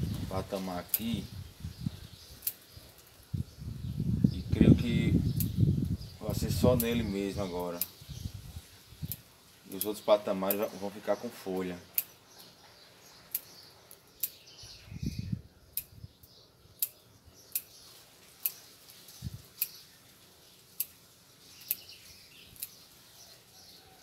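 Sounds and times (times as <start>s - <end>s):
scissors snipping leaves: 0.4s - 1.2s, 2.4s - 3.1s, 6.6s - 8.0s, 9.1s - 10.8s, 18.3s - 19.8s.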